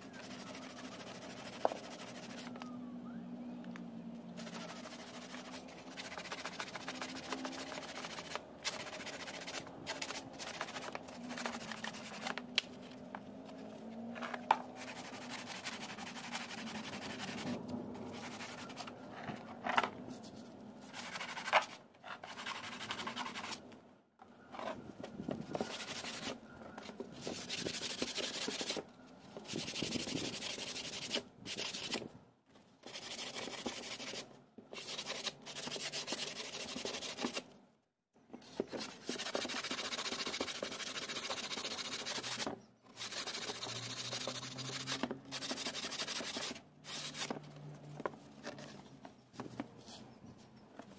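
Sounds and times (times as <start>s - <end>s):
sandpaper rubbing by hand: 0.0s - 2.5s, 4.4s - 12.4s, 14.8s - 19.0s, 20.2s - 23.6s, 25.6s - 26.4s, 27.2s - 28.8s, 29.4s - 32.0s, 32.8s - 37.4s, 38.4s - 47.4s.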